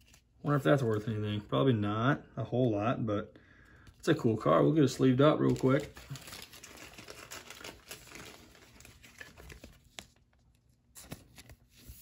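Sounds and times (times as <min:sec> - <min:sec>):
plastic sleeve crinkling: 0:04.0 - 0:12.0.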